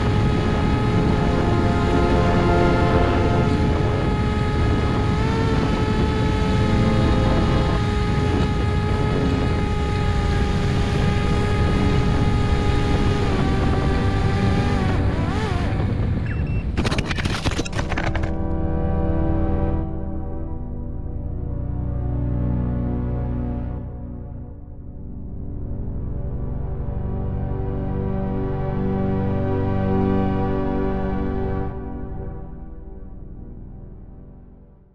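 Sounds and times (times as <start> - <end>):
wind rush: 0.0 - 18.5
electric motor propeller whine: 0.0 - 19.8.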